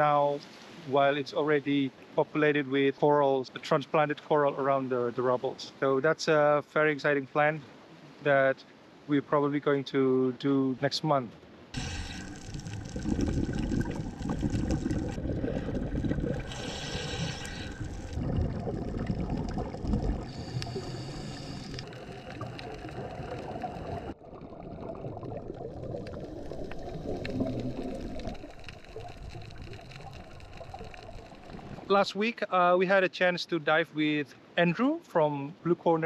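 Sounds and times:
bubbling diver exhalations: 0:11.8 - 0:31.9
underwater rushing rumble: 0:11.8 - 0:32.1.

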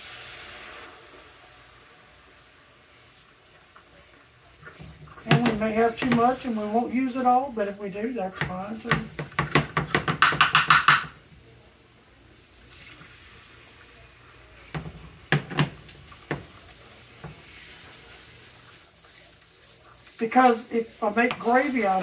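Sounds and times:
broth hissing in hot pan: 0:00.0 - 0:22.0
utensil scraping skillet: 0:04.5 - 0:11.1, 0:14.6 - 0:22.0
utensil knocking against pan: 0:05.3 - 0:06.4, 0:08.4 - 0:11.2, 0:14.7 - 0:16.5.

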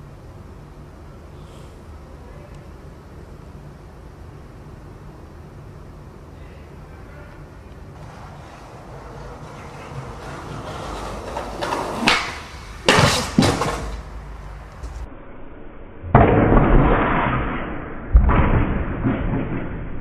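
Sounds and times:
skateboard clattering: 0:07.8 - 0:15.0.

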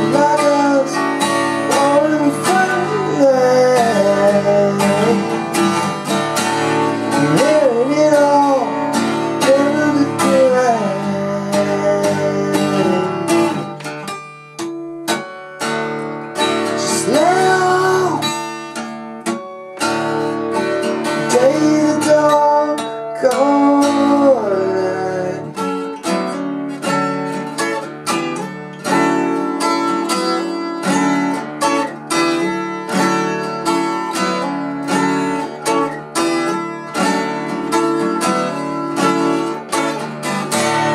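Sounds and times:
person singing wordless melody: 0:00.0 - 0:05.5, 0:07.2 - 0:13.7, 0:16.8 - 0:18.6, 0:21.3 - 0:25.6
acoustic guitar strummed: 0:00.0 - 0:40.9.

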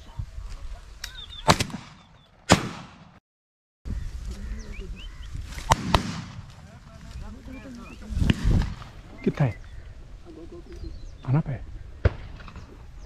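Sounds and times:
short bird calls: 0:01.0 - 0:02.3
shotgun shots with echo: 0:01.5 - 0:03.2, 0:05.7 - 0:06.5.

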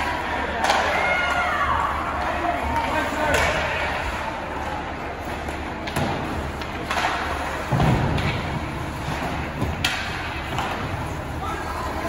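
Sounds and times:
hockey stick and puck knocks: 0:05.4 - 0:11.0.

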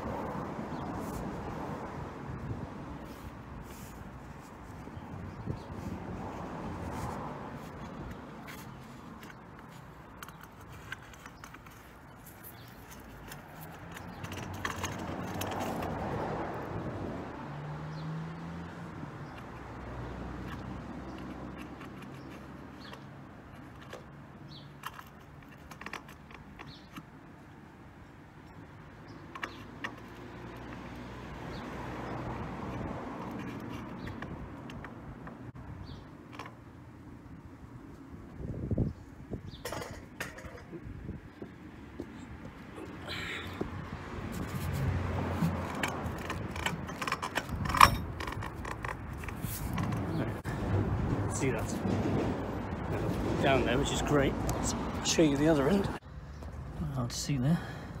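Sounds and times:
passing vehicle engine rumble: 0:00.0 - 0:24.6, 0:29.0 - 0:36.1, 0:40.6 - 0:58.0
plastic duct scraping against soil: 0:44.3 - 0:50.5.

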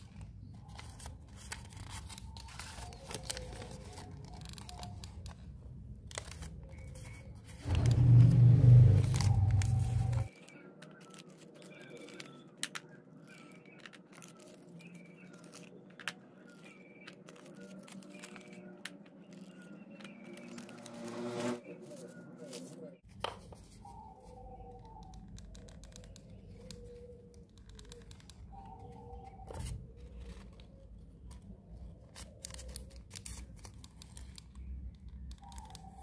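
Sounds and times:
paper liners crinkling: 0:00.0 - 0:24.0, 0:24.7 - 0:36.0
loud low rumble: 0:07.6 - 0:10.3.

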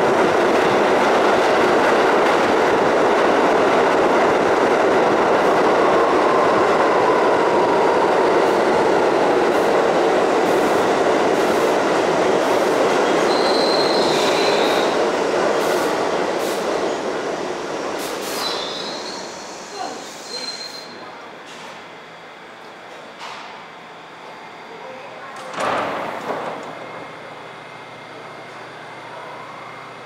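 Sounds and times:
subway train wheels rumbling: 0:00.0 - 0:30.0
brake squeal: 0:13.3 - 0:14.8, 0:20.2 - 0:21.0.

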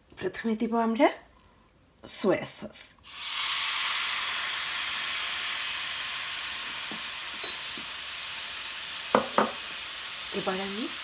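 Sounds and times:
sauce sizzling in frying pan: 0:03.0 - 0:11.0.

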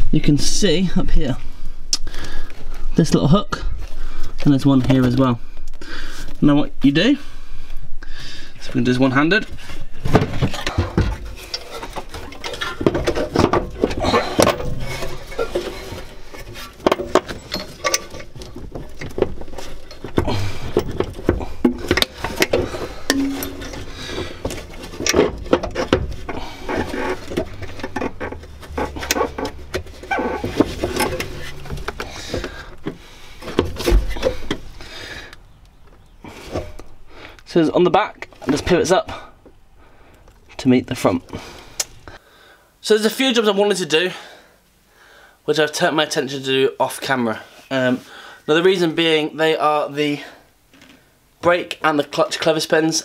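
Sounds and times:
heater unit knocks and scrapes: 0:10.1 - 0:34.7.

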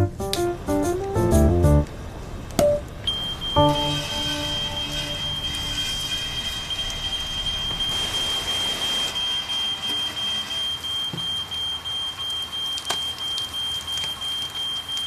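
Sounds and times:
fire alarm high-pitched tone: 0:03.0 - 0:15.0.

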